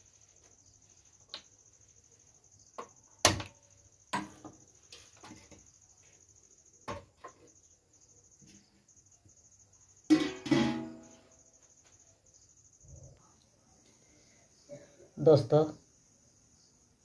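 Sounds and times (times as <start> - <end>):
metal cookware clanking: 10.1 - 11.2.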